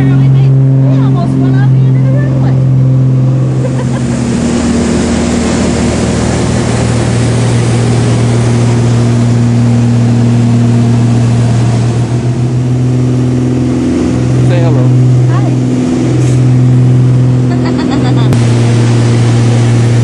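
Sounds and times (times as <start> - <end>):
propeller aircraft engine droning: 0.0 - 20.0
rush of air: 3.1 - 12.3, 18.3 - 20.0.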